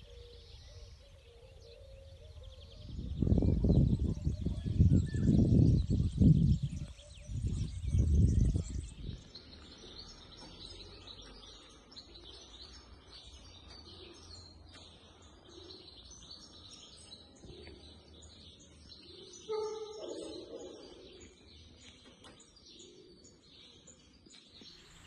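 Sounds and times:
small birds chirping: 0.0 - 25.0
wind buffeting microphone: 2.2 - 10.1
pigeons cooing: 22.8 - 23.5.

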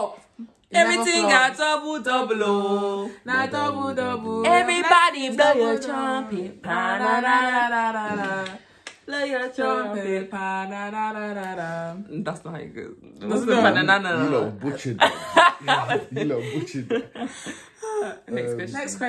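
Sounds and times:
women singing together: 0.0 - 12.1.

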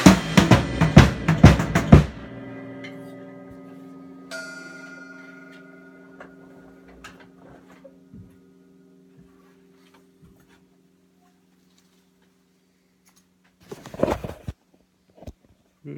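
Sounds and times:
cymbal crash: 0.0 - 9.8
cymbals ringing: 0.0 - 11.6.

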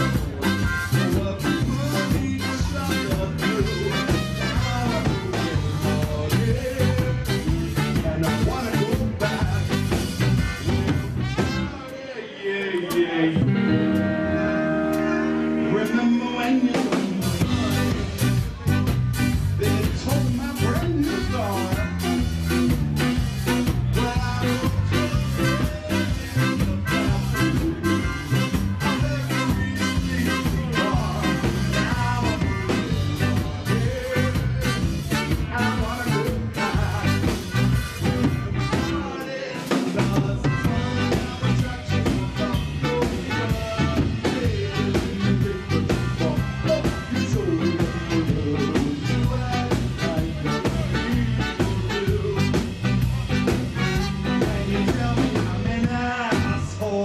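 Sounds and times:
electric guitar: 0.0 - 11.9, 12.8 - 57.0
melodica: 0.0 - 11.9, 17.3 - 39.6
drum kit: 0.0 - 12.0, 12.9 - 57.0
bass: 0.0 - 12.2, 12.8 - 57.0
trumpet: 0.0 - 57.0.

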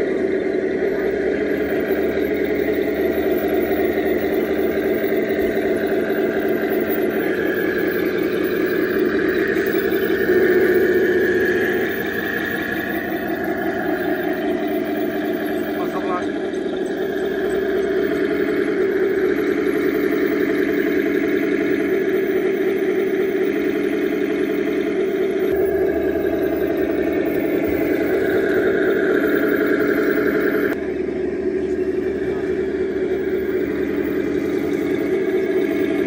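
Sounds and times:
simulated tank engine: 0.0 - 36.0.

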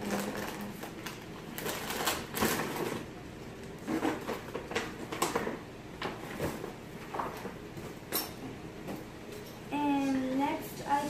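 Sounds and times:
gift packaging rustling: 0.0 - 3.1.

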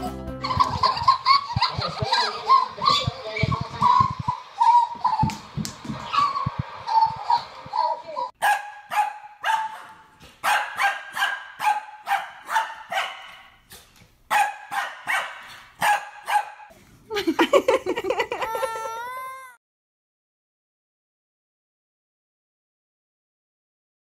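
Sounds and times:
dog barking: 8.4 - 13.6, 14.3 - 16.7.

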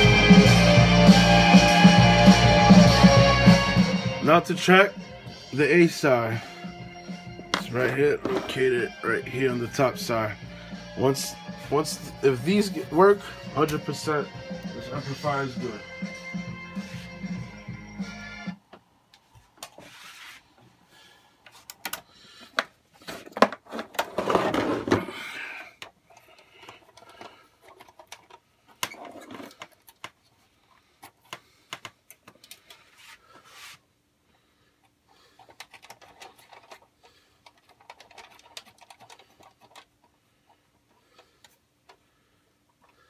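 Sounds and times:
rubbing and scraping: 19.6 - 20.6, 22.9 - 25.2, 32.6 - 33.9
clicks taps and rustling: 31.0 - 32.9.

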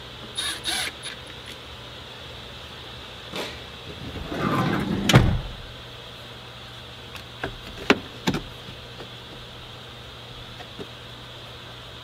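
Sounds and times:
trim panel thump: 4.0 - 5.7.

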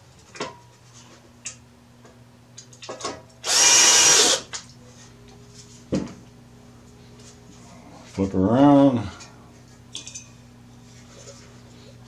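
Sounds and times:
cordless drill motor spinning: 3.4 - 4.5.

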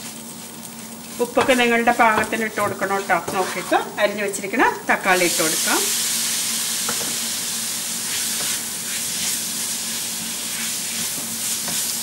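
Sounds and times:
food sizzling in oil: 0.0 - 12.0
wooden spatula stirring: 0.8 - 4.0.

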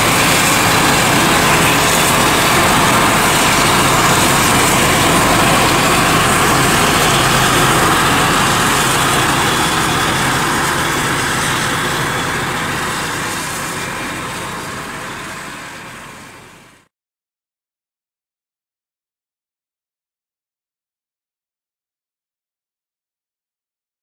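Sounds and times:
forage harvester engine drone: 0.0 - 16.9.

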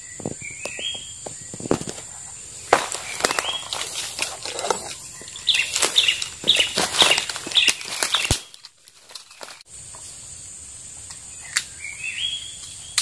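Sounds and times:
bird chirps: 0.0 - 8.6, 11.2 - 13.0
high insect drone: 0.0 - 13.0
bird calling rapidly: 2.4 - 8.6.

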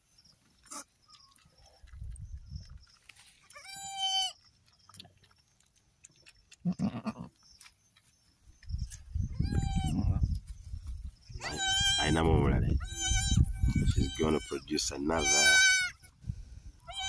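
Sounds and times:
goat kid bleating: 3.4 - 4.4, 6.6 - 7.3, 9.3 - 10.0, 11.4 - 16.2.

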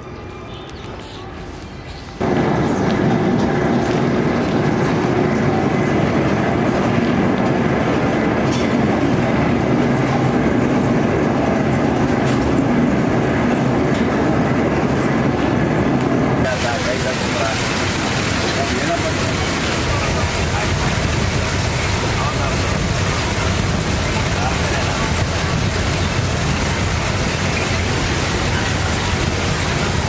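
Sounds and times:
low machine hum: 2.2 - 30.0
mill machinery rattling: 16.5 - 30.0.

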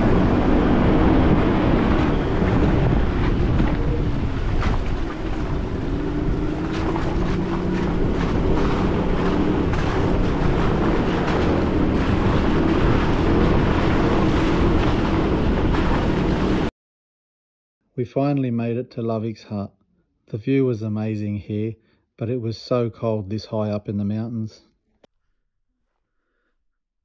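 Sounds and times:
car engine running: 0.0 - 16.7
wind on microphone: 0.0 - 16.7.

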